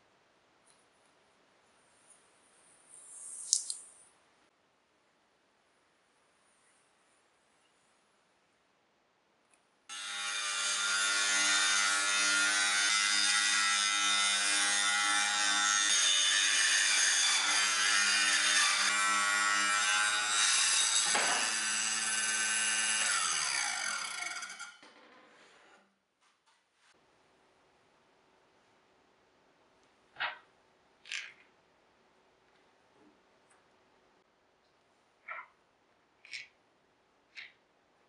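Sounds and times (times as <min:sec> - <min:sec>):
table saw running and cutting: 0:09.9 - 0:24.8
table saw winding down: 0:19.8 - 0:24.8.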